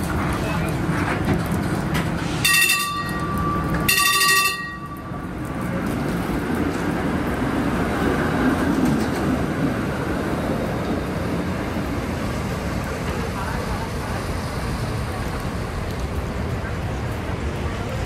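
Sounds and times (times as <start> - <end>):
streetcar running on rails: 0.0 - 18.0
streetcar signal tones: 1.9 - 6.0.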